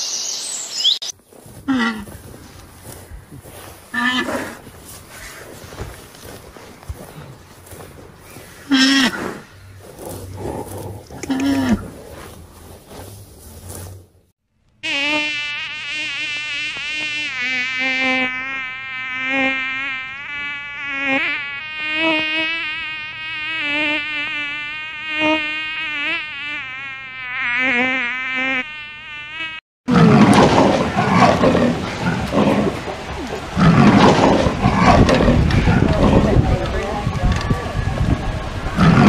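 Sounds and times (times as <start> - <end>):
mosquito wing whine: 14.8 - 29.6.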